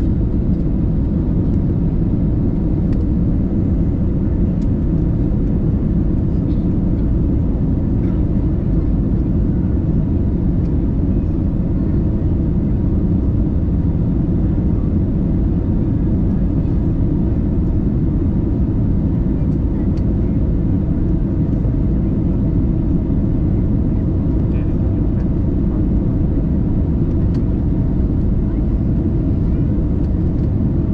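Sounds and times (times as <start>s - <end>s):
airliner engines and airflow: 0.0s - 30.9s.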